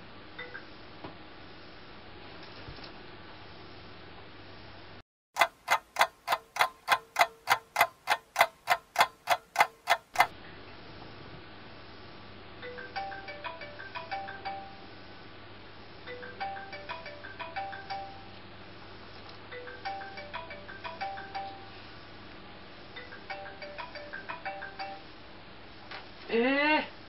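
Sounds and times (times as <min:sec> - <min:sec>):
clock ticking: 0:05.4 - 0:10.3
chiming alarm tune: 0:12.6 - 0:14.9, 0:16.1 - 0:18.3, 0:19.6 - 0:21.8.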